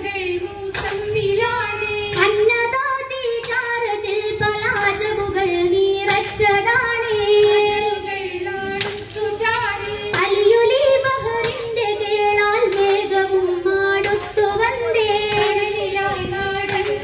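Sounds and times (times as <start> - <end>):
women singing together: 0.0 - 17.0
sharp handclaps: 0.6 - 1.3, 2.0 - 2.5, 3.3 - 3.8, 4.6 - 5.2, 6.0 - 7.9, 8.6 - 9.3, 10.0 - 13.3, 14.0 - 17.0.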